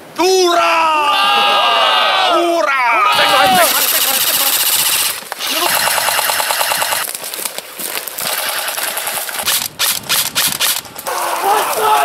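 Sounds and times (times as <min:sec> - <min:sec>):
airsoft rifles firing full auto: 0:03.2 - 0:07.1, 0:08.3 - 0:10.9.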